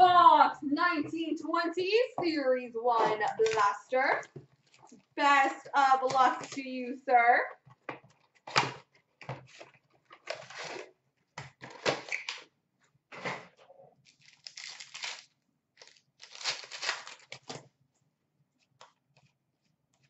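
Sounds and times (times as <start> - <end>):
foil pack ripping and crinkling: 14.1 - 17.6.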